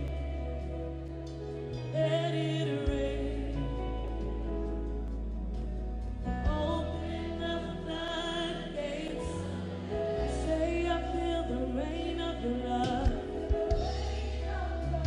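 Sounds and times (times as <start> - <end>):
steady bass: 0.0 - 15.0
woman singing: 1.7 - 4.8, 6.3 - 15.0.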